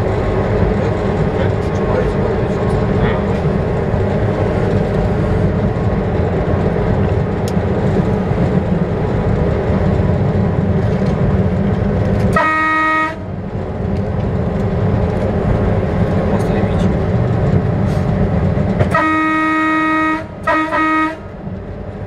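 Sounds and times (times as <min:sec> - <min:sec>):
train rumbling on track: 0:00.0 - 0:22.0
train horn blast: 0:12.3 - 0:13.4, 0:18.8 - 0:21.4.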